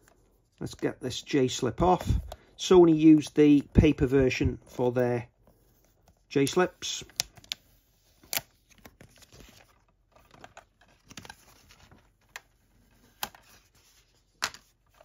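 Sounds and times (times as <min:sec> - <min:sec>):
paper rustling: 0:05.4 - 0:15.0.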